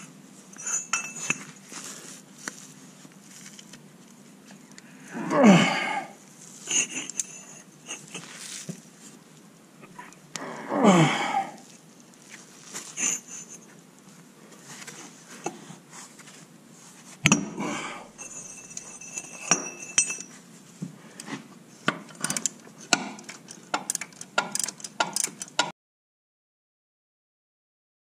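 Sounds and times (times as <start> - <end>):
metal tools clinking on steel: 0.5 - 1.7, 6.7 - 8.3, 13.0 - 13.7, 17.2 - 20.4, 22.1 - 25.7
short high metallic ring: 0.6 - 1.5, 7.1 - 7.7, 18.2 - 20.4
sharp metal clank: 18.2 - 20.3.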